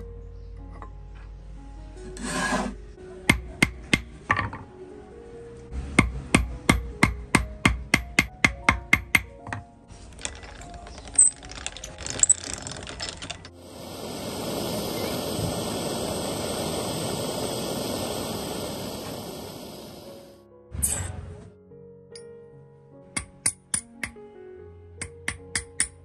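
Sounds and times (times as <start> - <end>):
hammer striking metal on steel block: 6.0 - 9.3, 23.2 - 24.2, 25.0 - 26.0.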